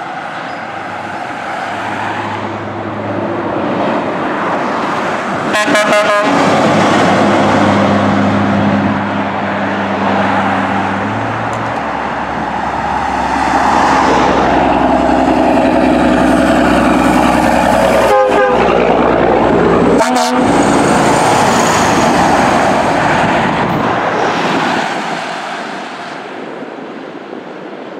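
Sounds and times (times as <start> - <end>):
semi truck passing loudly: 0.0 - 27.9
garbage truck engine passing: 6.2 - 25.3.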